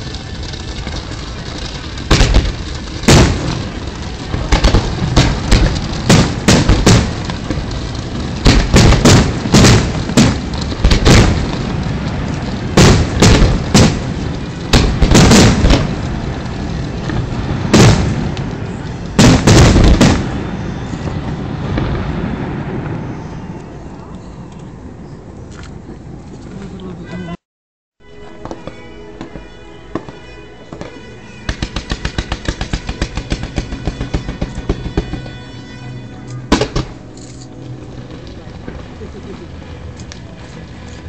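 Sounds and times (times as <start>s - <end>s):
fireworks bangs: 0.0s - 24.0s, 28.3s - 41.0s.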